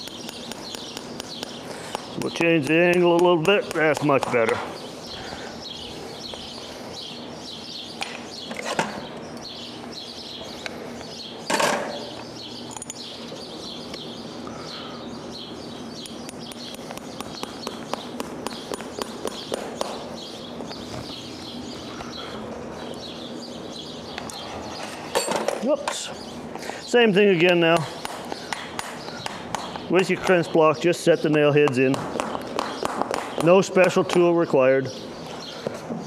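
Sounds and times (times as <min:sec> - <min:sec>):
hammer tapping horseshoe nail: 0:00.0 - 0:04.6, 0:16.0 - 0:20.0, 0:31.3 - 0:34.2
small birds chirping: 0:00.0 - 0:36.0.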